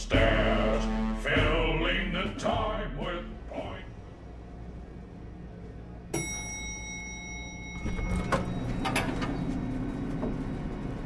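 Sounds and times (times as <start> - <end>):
elevator chime: 6.1 - 10.8
elevator doors sliding open: 7.6 - 11.0.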